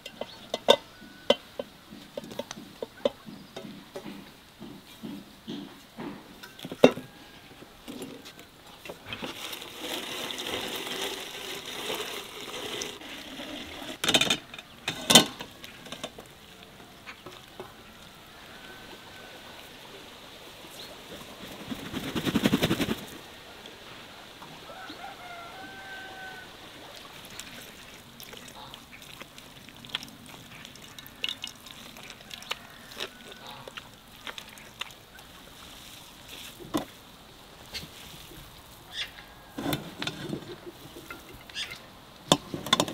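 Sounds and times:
wet clicks and drips: 27.2s - 35.2s
farm bird buzzy call: 38.9s - 39.6s.

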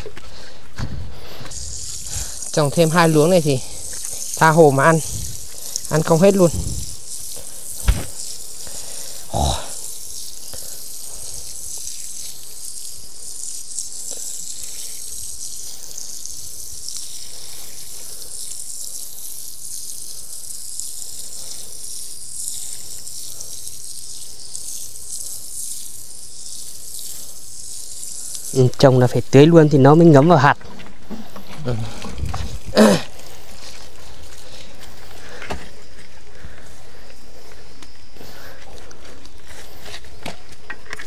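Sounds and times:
water pouring onto soil: 1.2s - 29.4s.

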